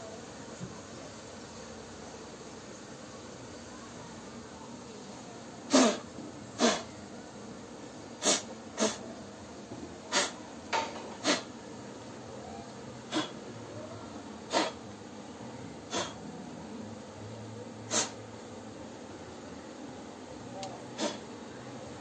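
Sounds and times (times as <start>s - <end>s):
steady low background noise: 0.0s - 10.8s, 11.4s - 22.0s
short sharp air puffs: 5.7s - 6.9s, 8.2s - 9.0s, 10.1s - 10.4s, 11.2s - 11.5s, 14.5s - 14.8s, 15.9s - 16.2s, 17.9s - 18.2s, 21.0s - 21.2s.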